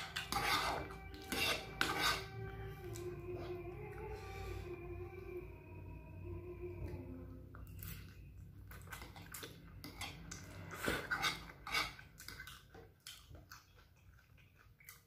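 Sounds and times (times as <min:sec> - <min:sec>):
person slurping noodles: 0:00.0 - 0:02.3.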